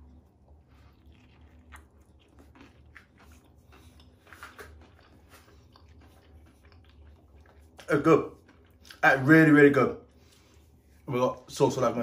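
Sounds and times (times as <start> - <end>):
person chewing crunchy food: 0.0 - 9.3.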